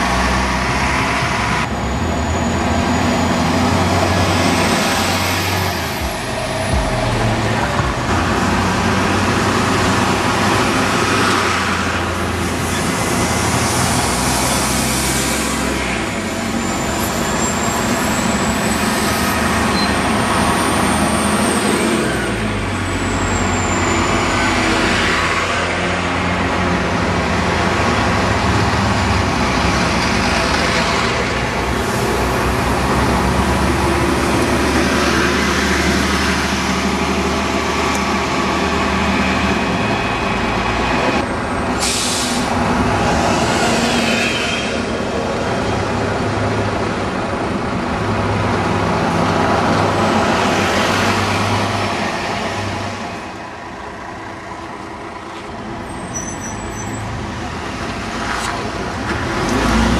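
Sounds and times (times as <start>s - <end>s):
bus engines idling: 0.0s - 59.9s
air brakes hissing: 41.7s - 42.6s.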